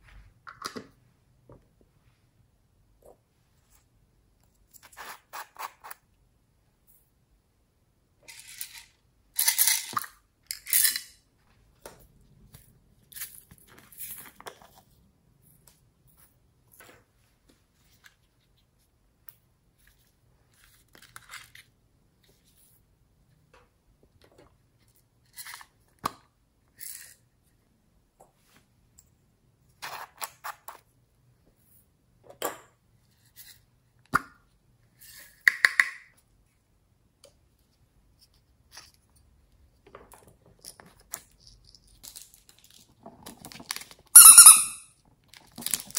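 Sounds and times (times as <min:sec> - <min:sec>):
packet crinkling: 0:45.3 - 0:45.9.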